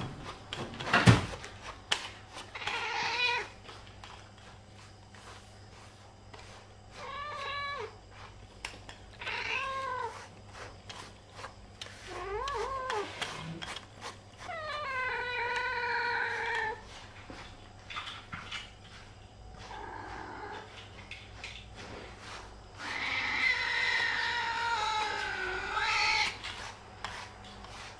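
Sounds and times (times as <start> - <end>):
cat meowing: 7.0 - 7.9, 9.2 - 10.2, 22.8 - 26.4.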